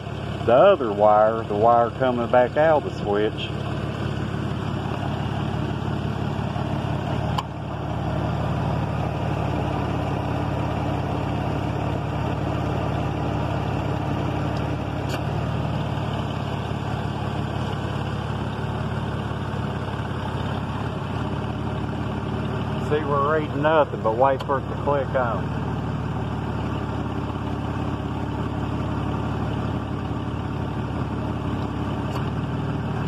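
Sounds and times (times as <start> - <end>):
van engine idling: 0.0 - 33.0
compressor clutch clicks: 24.3 - 24.6, 31.6 - 32.4.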